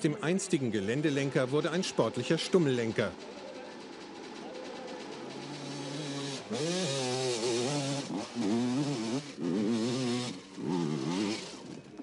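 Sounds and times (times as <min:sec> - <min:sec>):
dirt bike engine revving: 0:03.8 - 0:12.0.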